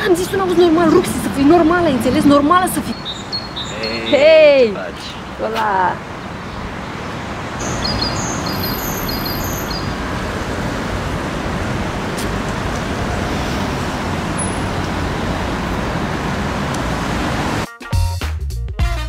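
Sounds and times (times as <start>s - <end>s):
street traffic: 0.0s - 17.7s.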